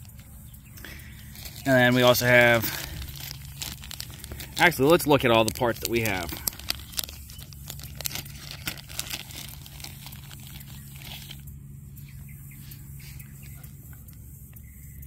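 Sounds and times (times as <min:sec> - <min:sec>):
plastic bag crinkling: 0:00.0 - 0:11.5.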